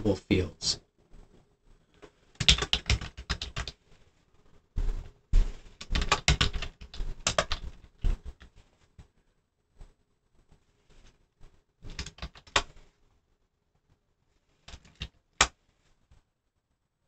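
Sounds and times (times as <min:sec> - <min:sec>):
computer keyboard typing: 0:02.4 - 0:03.8, 0:05.8 - 0:08.5, 0:11.8 - 0:12.8, 0:14.7 - 0:15.5.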